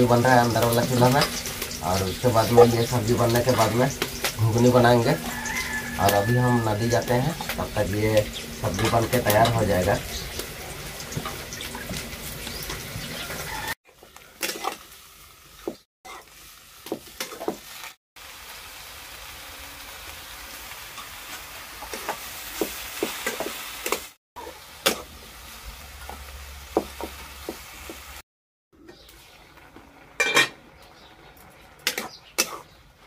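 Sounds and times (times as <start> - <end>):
curry sizzling in a pan: 0.0 - 28.2, 28.8 - 33.0
ladle clinking and scraping pan: 30.2 - 30.6.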